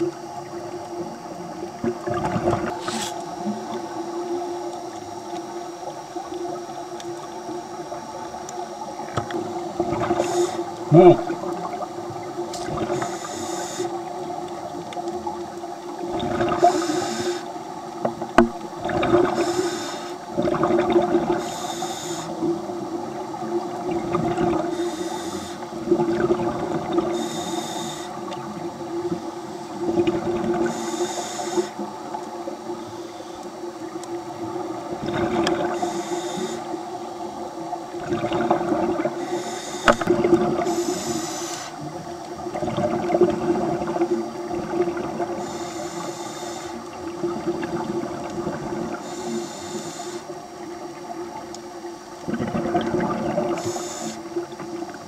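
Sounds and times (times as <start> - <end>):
exhaled bubbles rushing: 0.0 - 13.1, 14.0 - 19.6, 20.2 - 21.4, 22.4 - 24.8, 25.7 - 27.2, 28.2 - 30.7, 33.8 - 35.8, 37.3 - 39.2, 39.9 - 41.0, 41.9 - 45.4, 46.9 - 49.0, 52.2 - 55.0
steady low hum: 0.0 - 55.0
diver inhaling through regulator: 2.7 - 3.4, 10.0 - 11.4, 12.6 - 14.2, 16.4 - 17.6, 19.2 - 20.3, 21.2 - 22.6, 24.5 - 25.8, 27.0 - 28.3, 30.5 - 31.9, 35.2 - 37.0, 39.0 - 42.0, 45.3 - 47.0, 48.9 - 50.4, 53.4 - 54.4.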